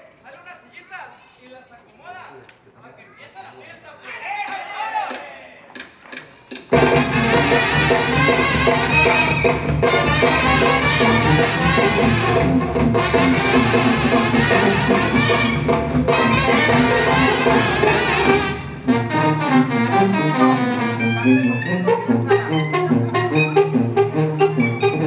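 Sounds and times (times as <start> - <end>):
brass band playing: 6.7 - 25.0.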